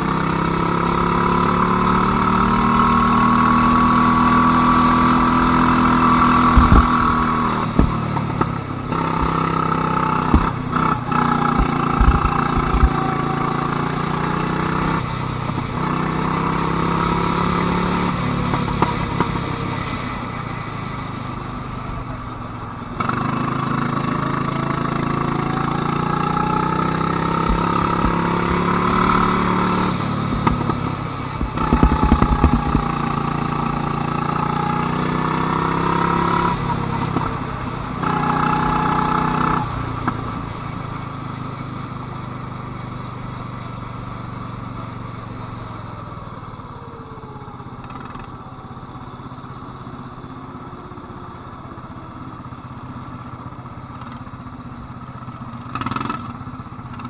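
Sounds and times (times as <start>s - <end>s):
go-kart engine running: 0.0s - 57.0s
low knocks and thumps: 6.4s - 8.0s, 11.5s - 13.0s, 31.4s - 32.9s.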